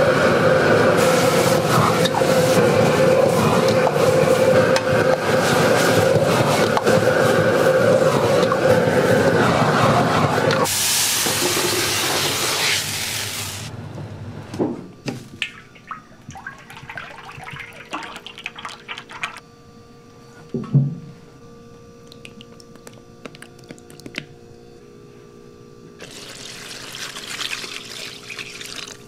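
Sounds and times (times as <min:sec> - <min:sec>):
kitchen hum: 0:00.0 - 0:19.4, 0:25.8 - 0:29.0
liquid pouring into a steel bowl: 0:15.6 - 0:19.4, 0:26.0 - 0:29.0.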